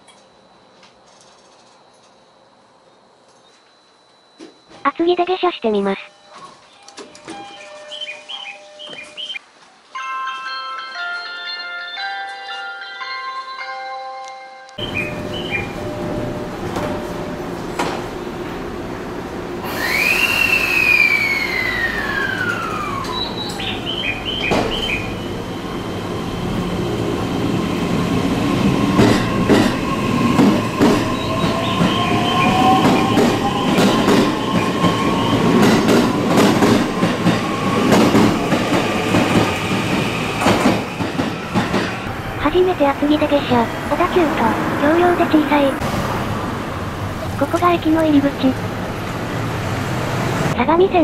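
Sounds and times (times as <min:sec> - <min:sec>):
train motor whine rising: 0:19.4 - 0:42.4
high falling tone: 0:19.6 - 0:24.3.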